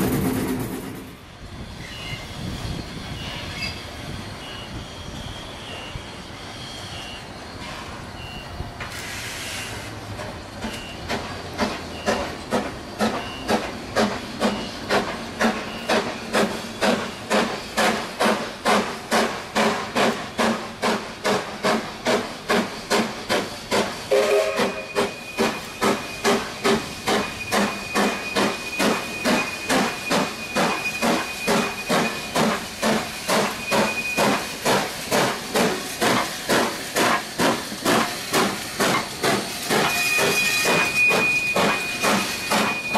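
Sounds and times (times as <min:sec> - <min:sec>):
steam hissing: 0:01.5 - 0:42.9
steam locomotive exhaust beating: 0:08.8 - 0:42.9.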